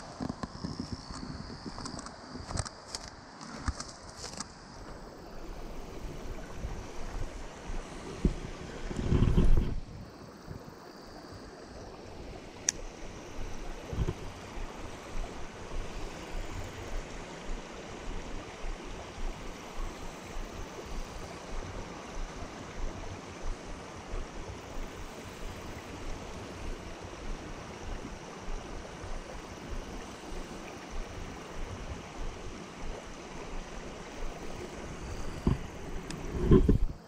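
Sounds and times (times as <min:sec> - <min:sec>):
wind buffeting microphone: 0:05.6 - 0:10.7, 0:12.8 - 0:37.0.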